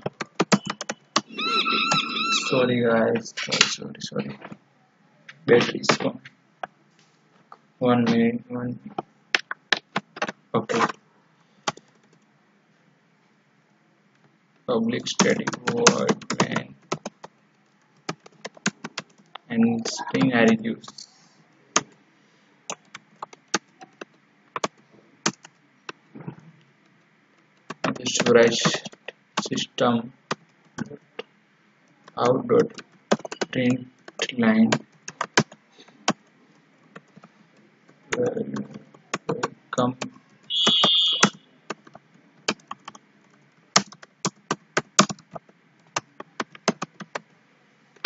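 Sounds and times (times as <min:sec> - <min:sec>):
keyboard typing: 0:00.0 - 0:02.5, 0:11.6 - 0:12.2, 0:15.0 - 0:22.0, 0:22.7 - 0:26.0, 0:26.8 - 0:29.6, 0:32.0 - 0:47.3.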